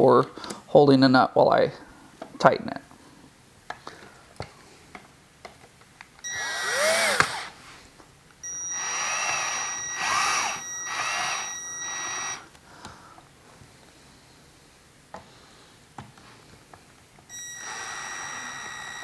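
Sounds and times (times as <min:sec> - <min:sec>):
power driver whining: 0:06.2 - 0:07.6, 0:08.4 - 0:12.5, 0:17.3 - 0:19.0.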